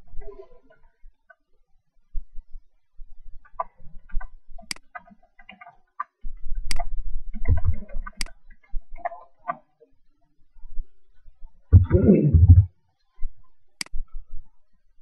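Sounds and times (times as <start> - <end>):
low rumble: 11.8 - 12.7.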